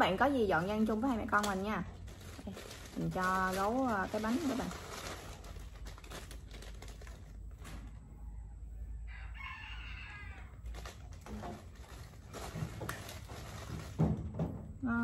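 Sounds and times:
rooster crowing: 8.2s - 10.7s.

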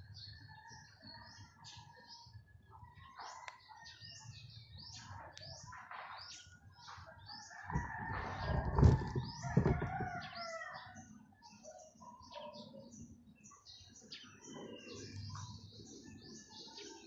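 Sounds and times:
small birds chirping: 0.0s - 17.0s
rooster crowing: 7.6s - 11.0s.

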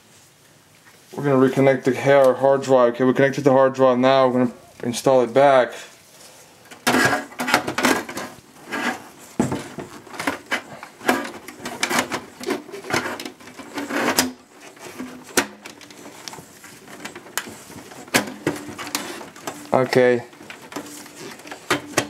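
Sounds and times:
metal and plastic rattles and scrapes: 6.6s - 22.0s.

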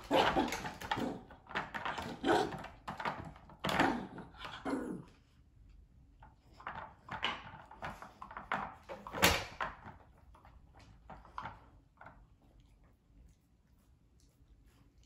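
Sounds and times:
plastic toys knocking and scraping: 0.0s - 4.6s, 6.2s - 12.2s.

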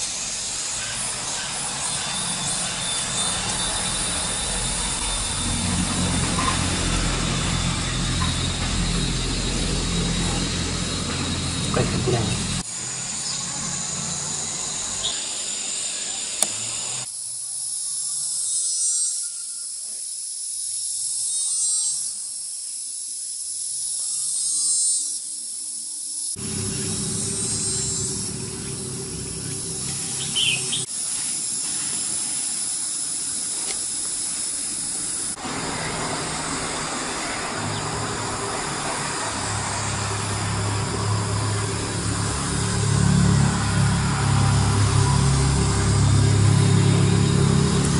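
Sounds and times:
insects buzzing: 0.0s - 47.9s
bird chirps: 26.4s - 30.9s
low steady hum: 26.4s - 30.9s.

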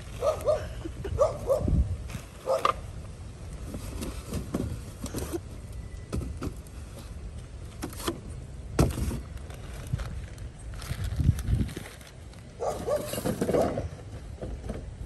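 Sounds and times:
rubbish rustling: 3.5s - 14.9s.

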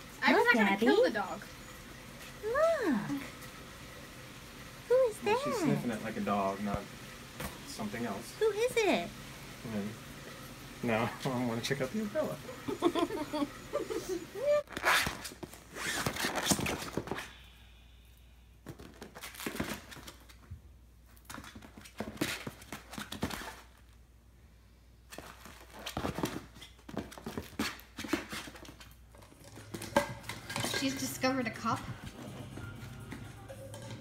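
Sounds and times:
puppy scuffling on vinyl mat: 18.6s - 24.0s, 25.1s - 34.0s.

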